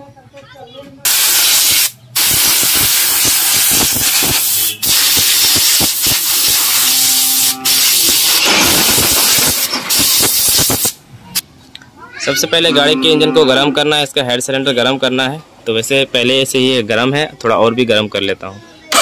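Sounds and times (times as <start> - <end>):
compressed air blasting: 1.0 - 11.0.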